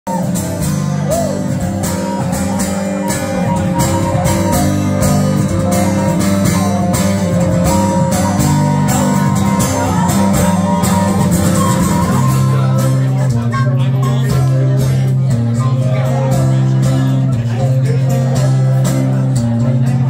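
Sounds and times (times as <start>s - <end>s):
wooden flute melody: 0.1s - 14.3s
acoustic guitar strumming: 0.1s - 20.0s.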